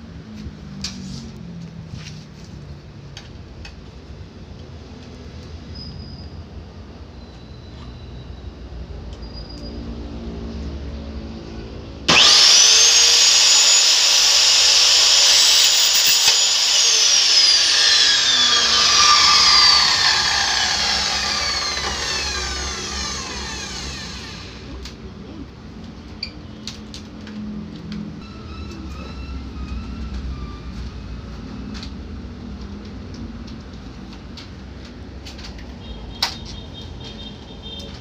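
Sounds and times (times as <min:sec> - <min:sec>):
miter saw whining: 0:12.1 - 0:24.8
saw cutting metal: 0:12.1 - 0:24.8.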